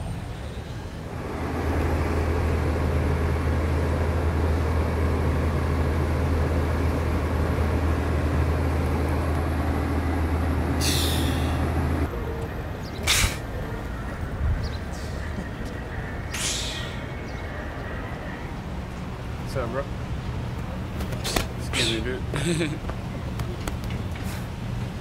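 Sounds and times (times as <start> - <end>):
street noise: 0.0 - 25.0
vehicle engine idling: 1.2 - 12.3.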